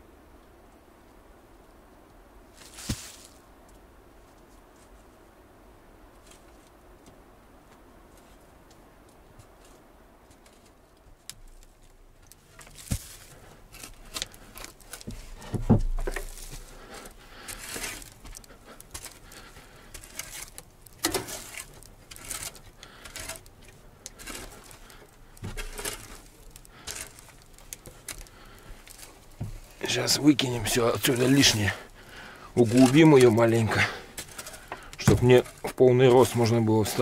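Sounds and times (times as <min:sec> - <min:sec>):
shovel scraping through soil: 0:02.6 - 0:03.4, 0:16.1 - 0:18.4, 0:19.9 - 0:23.5, 0:24.1 - 0:28.2, 0:32.6 - 0:37.0
dull knocks and thumps: 0:14.1 - 0:16.7, 0:27.8 - 0:29.7, 0:34.2 - 0:35.8.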